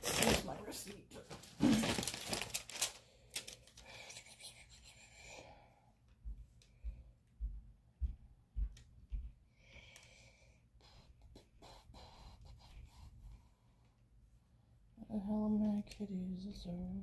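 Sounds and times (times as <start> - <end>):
paper receipt rustling: 0.0 - 4.0.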